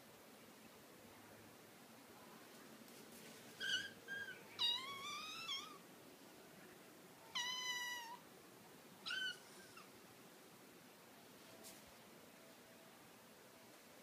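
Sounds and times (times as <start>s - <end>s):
kittens meowing: 3.6s - 5.8s, 7.3s - 8.2s, 9.0s - 9.9s.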